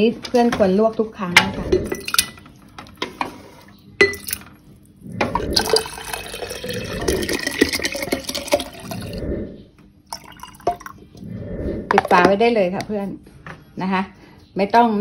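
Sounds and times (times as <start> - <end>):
liquid pouring into a glass jar: 5.4 - 9.2, 10.1 - 11.1.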